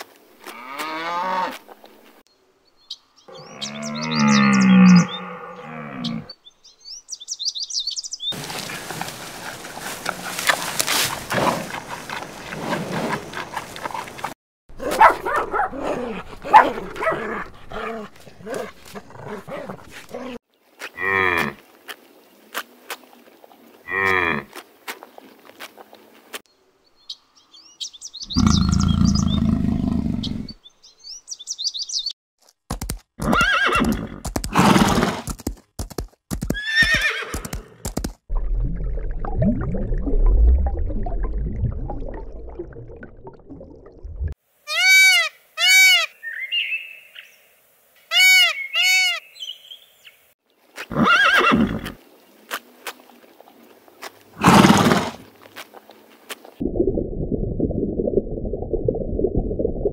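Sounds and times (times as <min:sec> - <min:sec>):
low animal call: 0:03.3 - 0:06.4, 0:28.3 - 0:30.6
horse whinnies: 0:33.2 - 0:35.3, 0:36.5 - 0:37.8, 0:50.9 - 0:52.0, 0:54.4 - 0:55.2
animal cries: 0:48.1 - 0:49.3.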